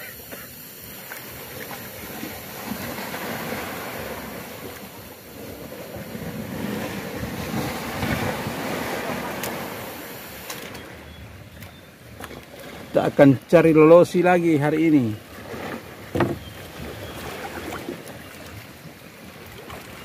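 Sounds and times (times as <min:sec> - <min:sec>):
sea waves lapping: 0:00.0 - 0:20.0
wind over microphone: 0:05.4 - 0:10.1.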